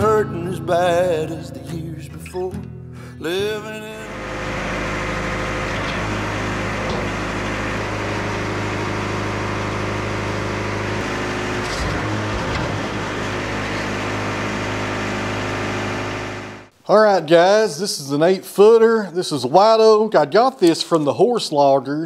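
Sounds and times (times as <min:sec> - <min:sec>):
engine idling: 0:04.1 - 0:16.7.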